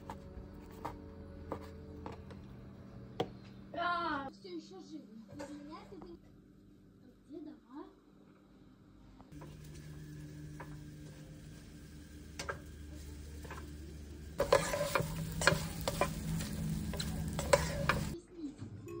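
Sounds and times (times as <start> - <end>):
spatula scraping and knocking pan: 0.0 - 2.4, 14.3 - 18.2
low steady hum: 0.0 - 18.2
food sizzling in a frying pan: 9.4 - 18.2.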